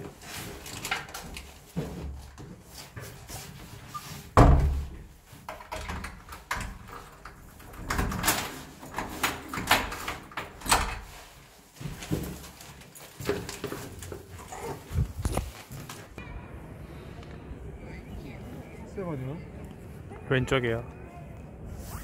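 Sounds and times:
clicks and rustling of jacket: 0:00.0 - 0:04.4, 0:05.1 - 0:16.2
door shutting with heavy thud: 0:04.4 - 0:05.0.

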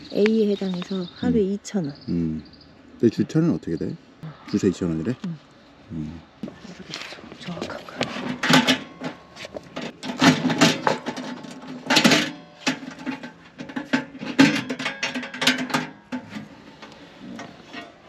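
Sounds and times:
metal lid rattling: 0:08.0 - 0:18.0.

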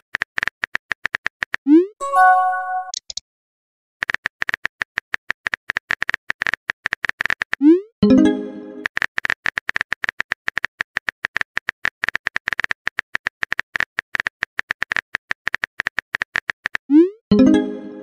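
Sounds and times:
message received chime: 0:02.0 - 0:03.0, 0:08.0 - 0:08.8, 0:17.3 - 0:18.0.

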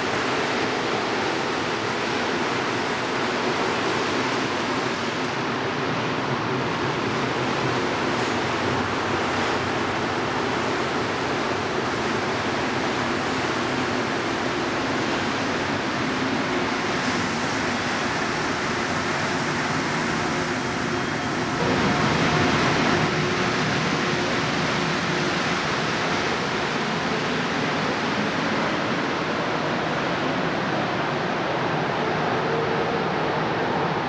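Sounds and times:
train rushing roar: 0:00.0 - 0:34.0.

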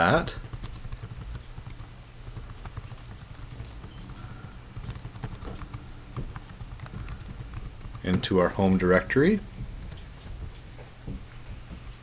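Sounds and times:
keyboard typing: 0:00.0 - 0:08.4, 0:09.8 - 0:10.7
steady low hum: 0:00.0 - 0:12.0.

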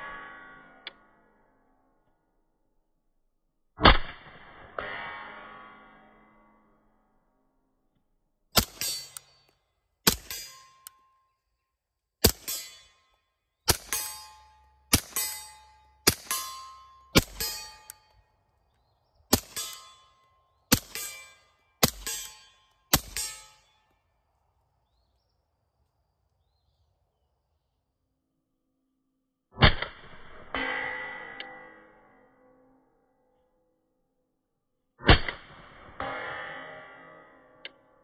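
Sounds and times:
suppressed pistol shots: 0:08.6 - 0:09.3, 0:13.7 - 0:14.2, 0:20.7 - 0:22.3
metallic ring: 0:08.6 - 0:09.5, 0:10.1 - 0:11.4, 0:12.3 - 0:18.3, 0:19.4 - 0:23.9.

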